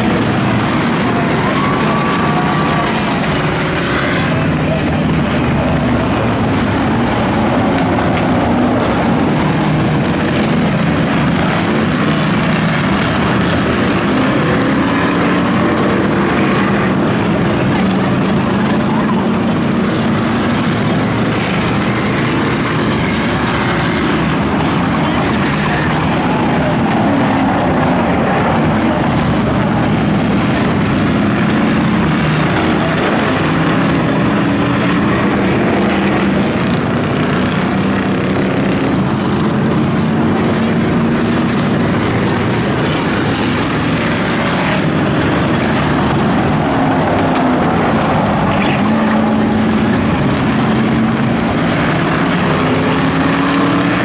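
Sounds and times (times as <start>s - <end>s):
race car engines: 0.0s - 54.0s.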